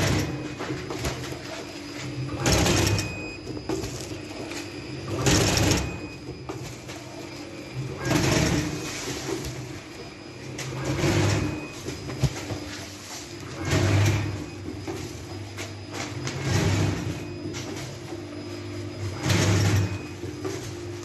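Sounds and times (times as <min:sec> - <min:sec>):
steady motor hum: 0:00.0 - 0:21.0
packing machine mechanical bursts: 0:02.1 - 0:06.4, 0:07.8 - 0:09.7, 0:10.4 - 0:12.1, 0:13.3 - 0:14.6, 0:19.0 - 0:20.9.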